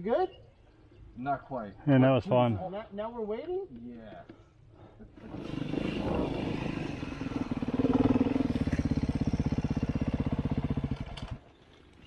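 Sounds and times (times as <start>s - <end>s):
dirt bike engine running: 5.3s - 11.4s.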